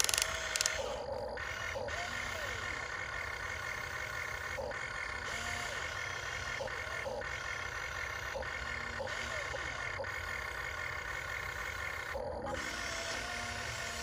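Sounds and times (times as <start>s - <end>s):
short clicks: 0.0s - 0.9s
toy excavator motors whining: 0.0s - 14.0s.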